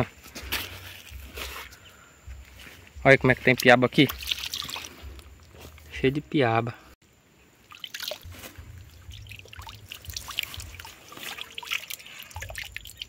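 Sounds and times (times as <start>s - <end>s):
water trickling and splashing: 3.2s - 6.3s, 7.6s - 13.0s
low uneven rumble: 8.3s - 11.2s.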